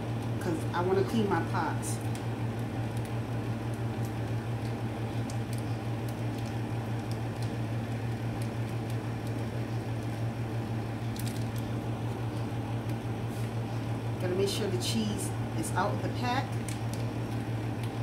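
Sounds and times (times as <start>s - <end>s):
foil pouch crinkling: 11.0s - 13.6s.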